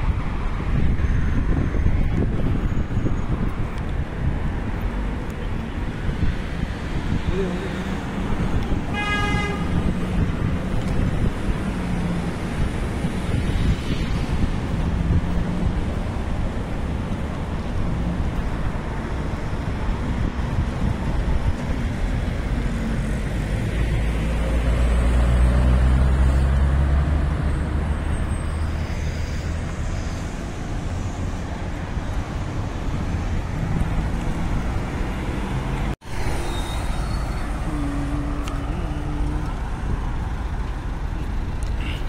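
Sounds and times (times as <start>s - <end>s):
cars driving past: 0.0s - 42.0s
vehicle engine rumble: 0.0s - 42.0s.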